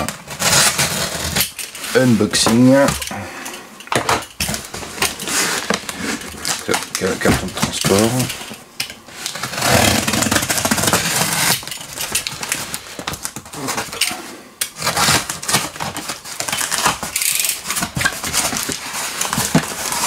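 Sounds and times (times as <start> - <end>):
knife slitting packing tape: 0.0 - 1.8, 9.2 - 20.0
cardboard flaps scraping and crackling: 4.5 - 8.3.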